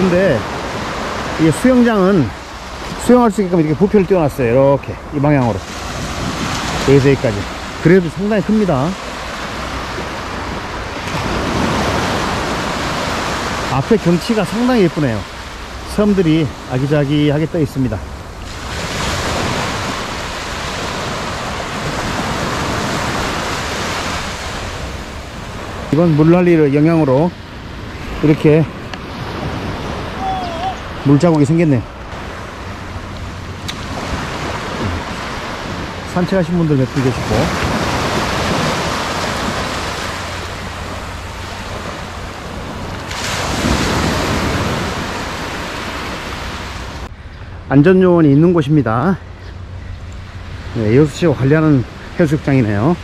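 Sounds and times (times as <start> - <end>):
small waves breaking on a beach: 0.0 - 53.0
wind rumbling on microphone: 0.0 - 53.0.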